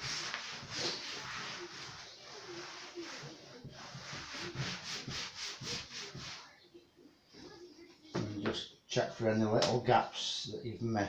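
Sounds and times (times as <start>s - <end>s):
cloth rubbing on tabletop: 0.0s - 6.6s.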